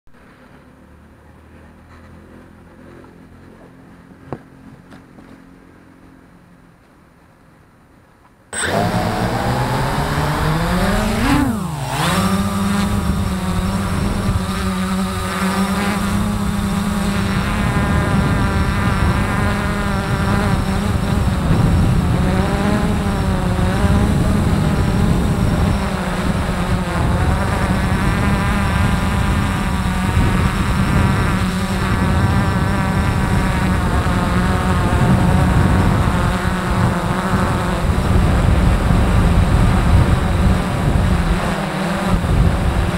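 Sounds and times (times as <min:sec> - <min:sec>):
drone propellers buzzing: 0:08.5 - 0:42.9.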